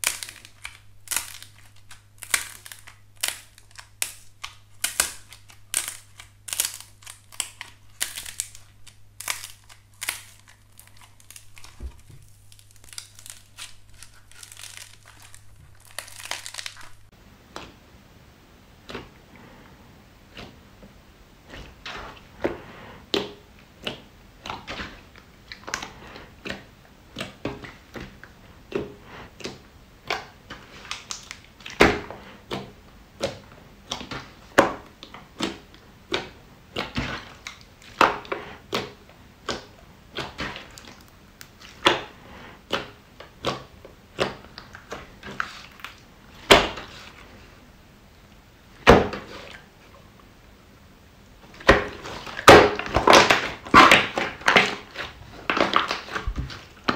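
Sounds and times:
hands squishing slime: 0:00.0 - 0:17.6.

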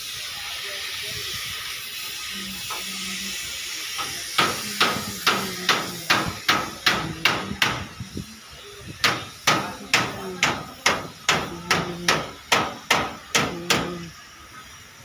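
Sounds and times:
hammer blows on metal: 0:04.0 - 0:08.1, 0:09.0 - 0:14.1.

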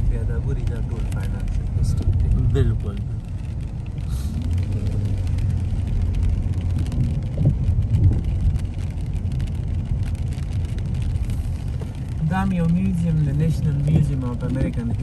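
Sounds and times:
engine and tyre rumble: 0:00.0 - 0:15.0.

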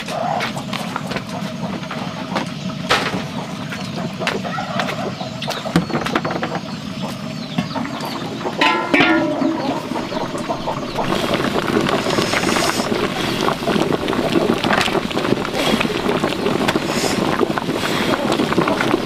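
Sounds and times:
wood fire crackling: 0:08.4 - 0:19.0
firewood knocking when stirred: 0:08.6 - 0:17.7
low rumble: 0:08.6 - 0:19.0.

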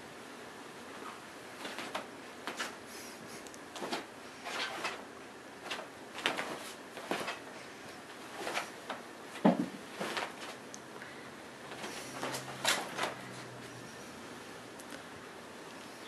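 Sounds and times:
bed sheets rustling and scratching: 0:00.8 - 0:10.6, 0:11.7 - 0:14.2.

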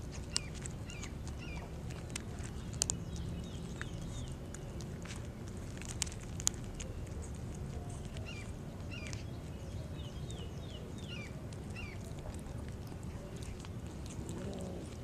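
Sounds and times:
kittens crunching dry kibble: 0:00.0 - 0:15.0
steady low rumble: 0:00.0 - 0:15.0
bird chirping: 0:00.3 - 0:05.0, 0:06.7 - 0:13.6.

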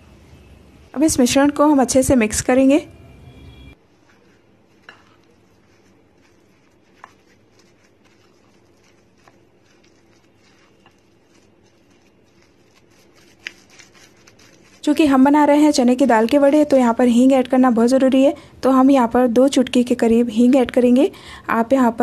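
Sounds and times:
spatula stirring batter in bowl: 0:03.8 - 0:17.5.

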